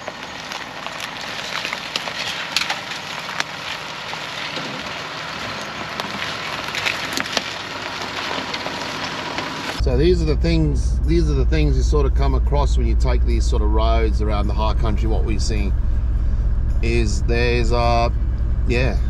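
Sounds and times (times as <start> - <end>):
twigs snapping under tyres: 0.0 - 9.8
vehicle creeping along: 0.0 - 19.0.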